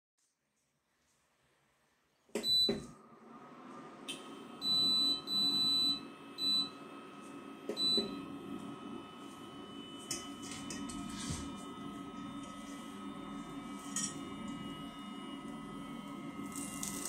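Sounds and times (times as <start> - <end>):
cooling fan whirring: 2.3 - 17.0
cooktop control panel beeps: 2.4 - 2.9, 4.1 - 6.8, 7.7 - 8.3.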